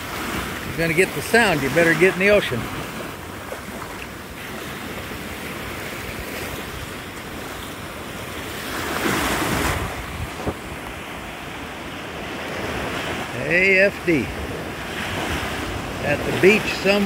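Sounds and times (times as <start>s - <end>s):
wind buffeting microphone: 0.0s - 13.4s
surf washing over sand: 0.0s - 17.0s.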